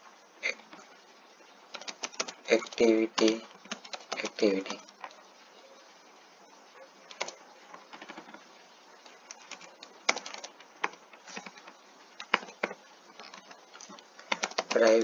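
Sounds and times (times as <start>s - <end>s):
computer keyboard typing: 1.7s - 5.2s, 7.1s - 15.0s.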